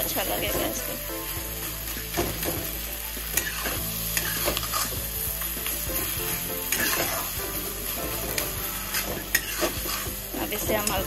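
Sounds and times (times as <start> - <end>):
food sizzling in a pan: 0.0 - 11.0
metal spatula scraping a pan: 3.2 - 11.0.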